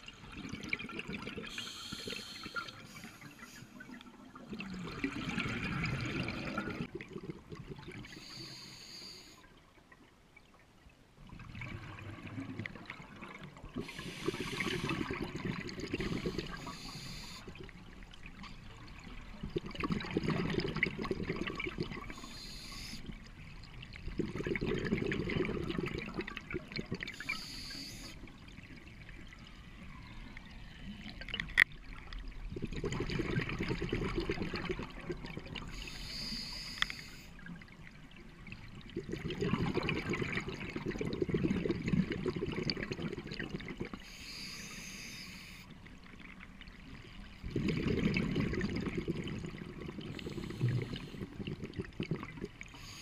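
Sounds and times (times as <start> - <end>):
exhaled bubbles: 0.0 - 8.6, 11.2 - 30.2, 32.0 - 36.8, 37.4 - 44.4, 46.9 - 53.0
regulator inhale hiss: 1.5 - 3.8, 8.1 - 9.4, 13.8 - 15.1, 16.0 - 17.5, 22.1 - 23.2, 27.2 - 28.2, 35.7 - 37.4, 44.0 - 45.7, 50.1 - 51.4, 52.7 - 53.0.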